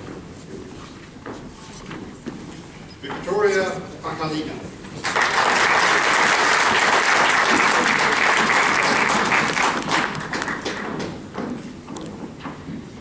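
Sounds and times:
audience applauding: 5.0 - 11.2.

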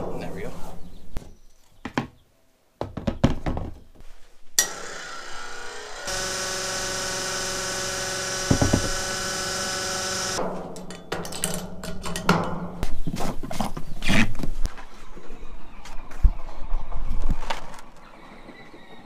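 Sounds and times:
fuel pump humming: 4.6 - 10.4
irregular knocks and clatter: 10.4 - 13.9.

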